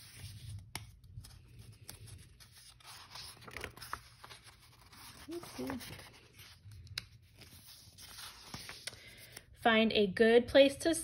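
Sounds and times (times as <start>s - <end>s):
paper pages rustling: 0.0s - 9.5s.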